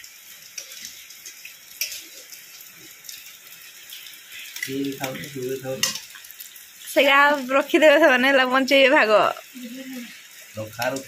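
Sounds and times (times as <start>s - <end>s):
rain hissing: 0.0s - 11.0s
man's voice: 10.6s - 11.0s.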